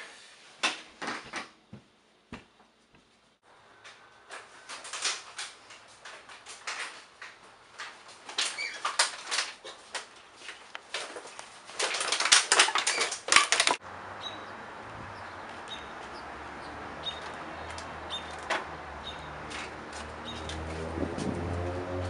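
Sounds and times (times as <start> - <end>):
outdoor background: 0.0 - 22.0
plastic bags of bottles crinkling: 7.8 - 13.8.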